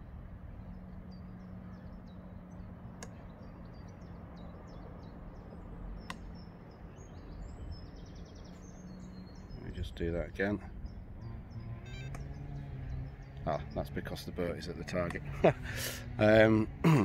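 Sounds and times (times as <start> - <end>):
small birds chirping: 0.0 - 17.0
sharp clicks: 12.1 - 12.4.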